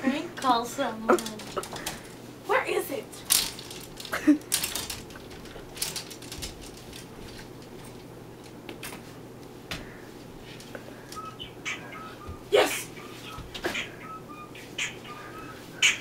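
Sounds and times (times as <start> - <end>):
plastic hangers clicking on rod: 3.2 - 7.4.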